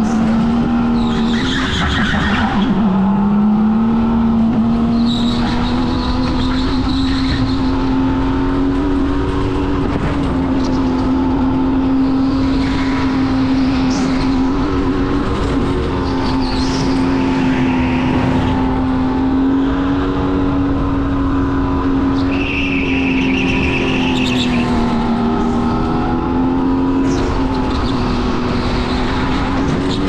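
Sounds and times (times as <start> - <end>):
go-kart engine running: 0.0 - 30.0.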